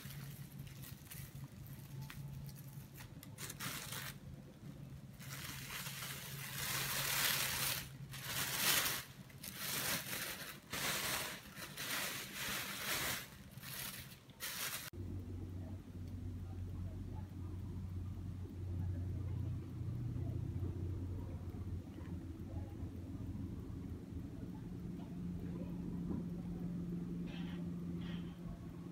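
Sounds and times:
plastic bag crinkling and rustling: 0.0s - 14.9s
faint steady hum: 0.0s - 28.9s.

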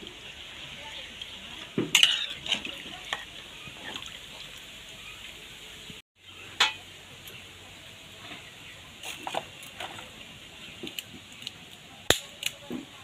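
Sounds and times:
ladle scraping metal pan: 1.9s - 3.3s.

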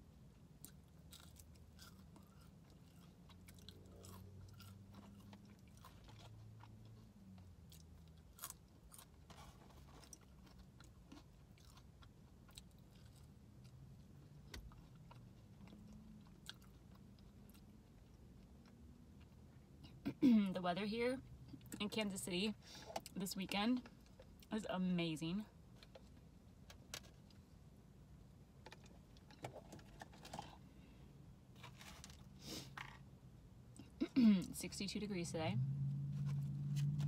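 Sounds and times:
chewing fries: 0.6s - 19.4s.

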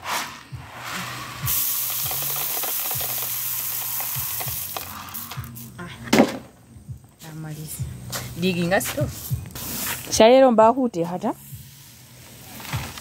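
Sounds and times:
dry grain pouring: 0.0s - 5.6s.

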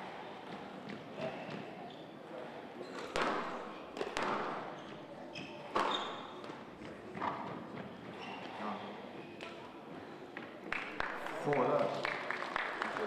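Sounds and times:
squash ball cracking off rackets: 3.0s - 4.8s
shoes squeaking on wooden floor: 4.7s - 6.6s, 7.2s - 9.4s.

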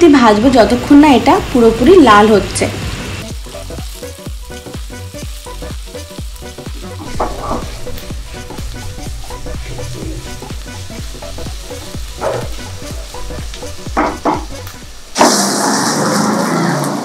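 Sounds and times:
onions sizzling in oil: 0.0s - 17.0s.

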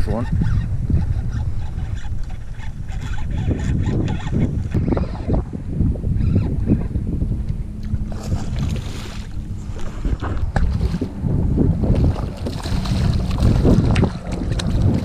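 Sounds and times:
wind rumbling on microphone: 0.0s - 15.0s
water splashing: 7.8s - 15.0s.

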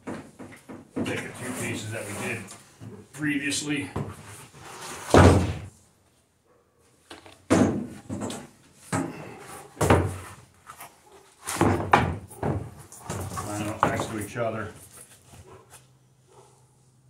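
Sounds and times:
wooden boards thudding: 5.1s - 5.7s, 7.4s - 9.2s, 9.8s - 10.3s, 11.5s - 14.1s.

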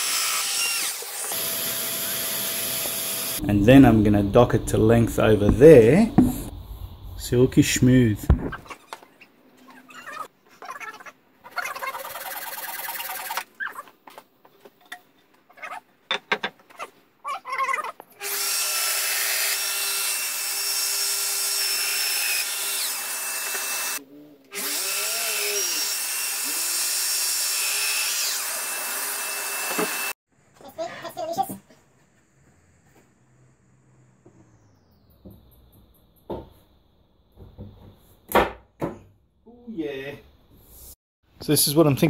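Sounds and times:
power tool motor whining: 28.2s - 30.1s.

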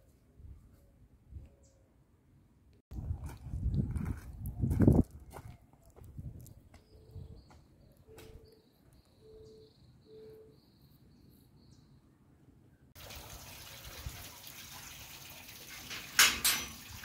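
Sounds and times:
flip-flop footsteps on gravel: 3.0s - 6.9s.

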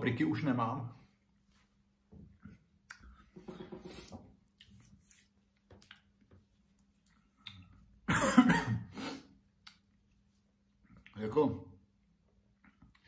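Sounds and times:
wet chewing clicks and smacks: 5.6s - 7.9s, 9.5s - 10.2s, 12.5s - 13.0s.

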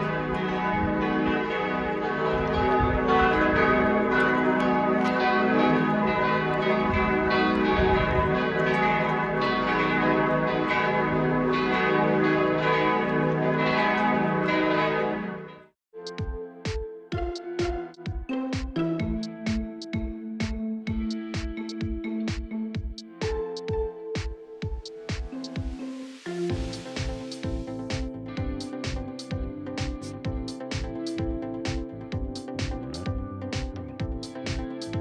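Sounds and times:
church bells pealing: 0.0s - 15.7s.

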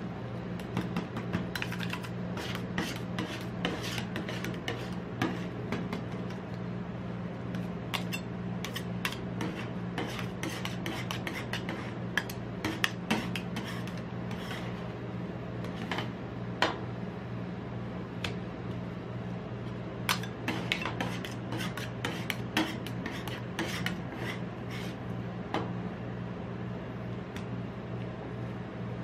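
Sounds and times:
metal spatulas scraping on steel: 1.5s - 5.5s, 7.9s - 14.7s, 20.1s - 25.0s.

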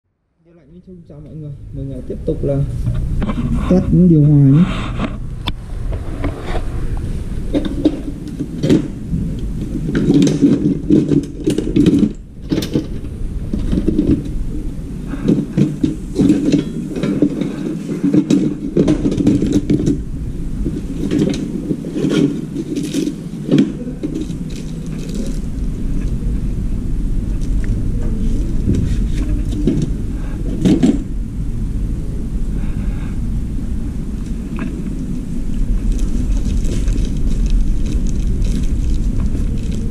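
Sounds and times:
steady low rumble: 0.1s - 39.9s
tools clattering in toolbox: 15.2s - 20.0s.

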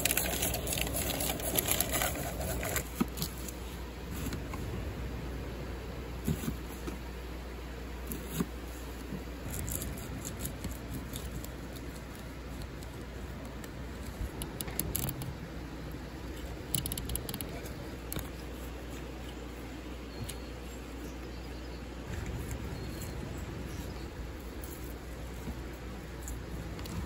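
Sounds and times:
low rumble: 4.0s - 6.4s, 22.0s - 27.0s.

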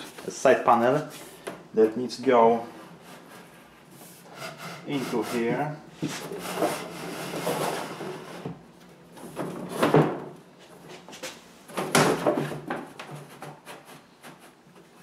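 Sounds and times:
plywood panel scraping against cabinet: 2.6s - 8.6s.

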